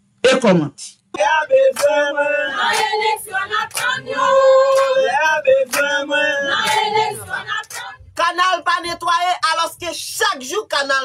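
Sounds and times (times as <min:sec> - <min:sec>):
group singing together: 0:01.2 - 0:08.9.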